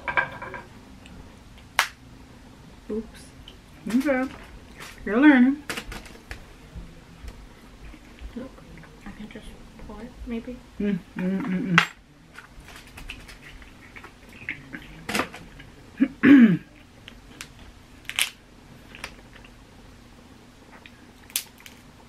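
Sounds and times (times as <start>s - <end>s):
person murmuring mm: 10.8s - 11.8s
crab shells cracking: 17.1s - 19.6s, 20.8s - 21.8s.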